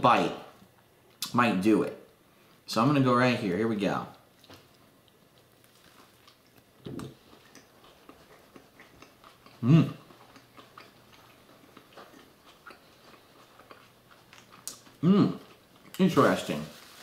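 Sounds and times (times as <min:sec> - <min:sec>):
man chewing: 0:04.3 - 0:16.0
wet mouth clicks: 0:06.9 - 0:11.0
hummed mm: 0:08.3 - 0:10.1, 0:15.0 - 0:15.5.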